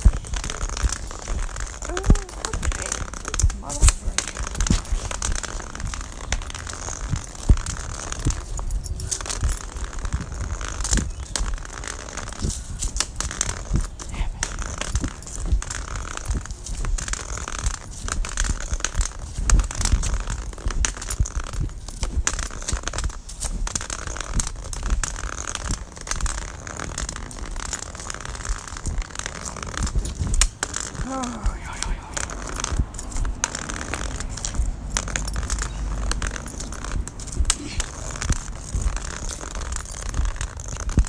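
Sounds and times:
low rumble: 0:29.8 - 0:40.4.

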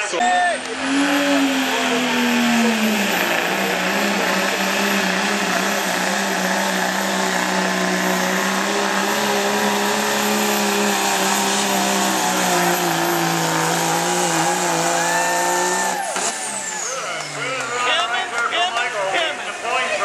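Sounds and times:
diesel engine running flat out: 0:00.0 - 0:20.0.

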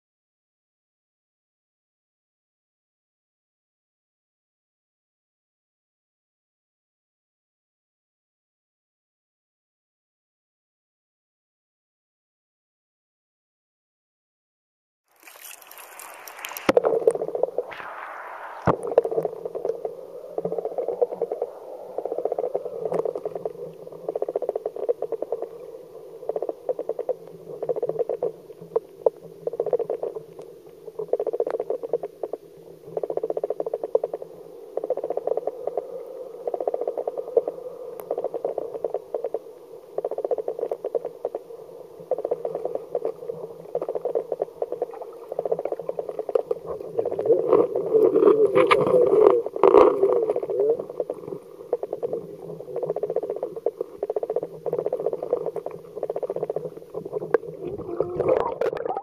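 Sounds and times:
muffled underwater current rushing: 0:15.1 - 0:30.4
crackling underwater clicks: 0:15.1 - 0:59.0
brief hiss: 0:15.2 - 0:16.8, 0:17.7 - 0:19.2.

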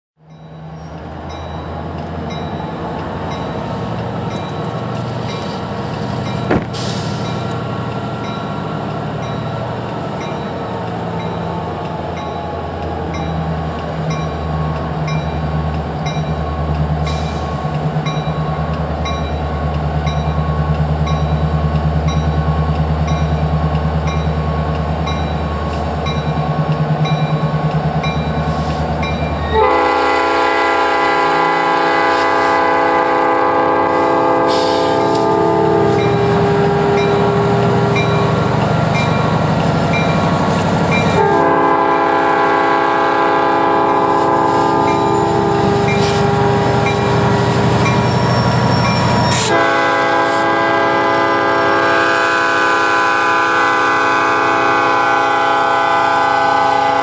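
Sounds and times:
railroad crossing bell ringing: 0:00.2 - 0:06.5, 0:07.1 - 0:57.0
diesel locomotive engine rumble: 0:00.2 - 0:57.0
locomotive horn: 0:29.4 - 0:38.0, 0:41.1 - 0:47.4, 0:49.3 - 0:57.0.

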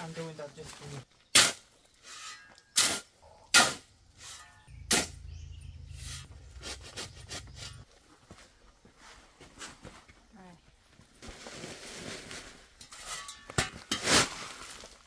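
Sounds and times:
shovel scraping gravel: 0:01.4 - 0:05.3, 0:06.0 - 0:07.8, 0:11.3 - 0:15.0
low rumble: 0:04.7 - 0:07.8.

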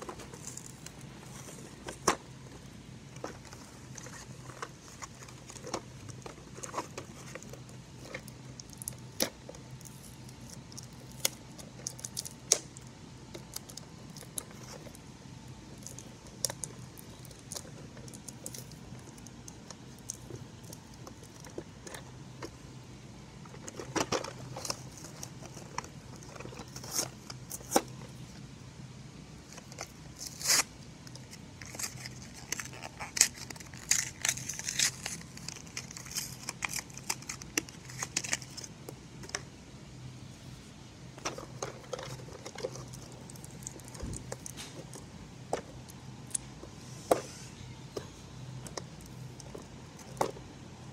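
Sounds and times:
faint low hum: 0:00.0 - 0:50.9
plastic bag crinkling: 0:29.6 - 0:39.4.

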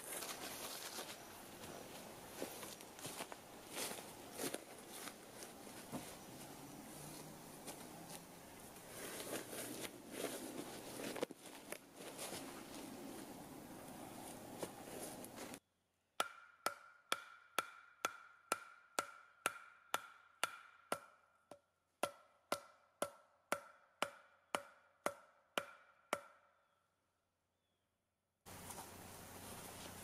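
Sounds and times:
wooden baton knocking on stake: 0:16.2 - 0:21.2.

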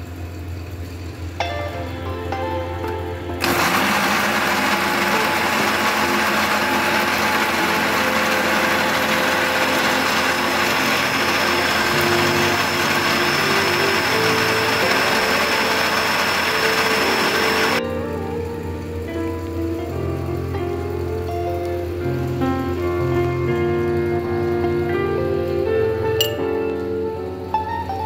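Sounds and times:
blender running: 0:03.4 - 0:17.8.

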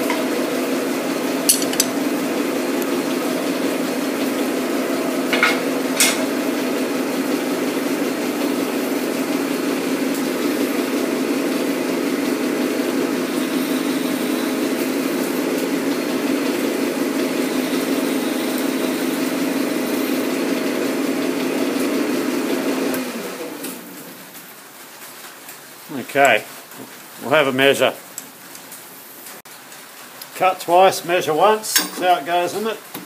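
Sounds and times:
metal lathe humming: 0:00.0 - 0:23.3.

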